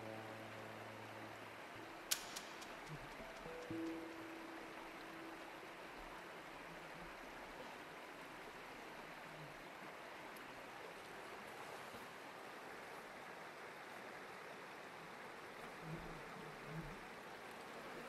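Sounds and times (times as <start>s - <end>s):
stream water rushing: 0.0s - 18.0s.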